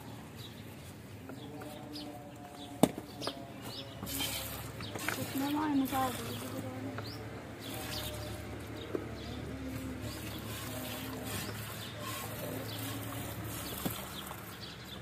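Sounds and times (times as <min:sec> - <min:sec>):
milk squirting into metal bucket: 0:04.1 - 0:06.6, 0:10.1 - 0:14.6.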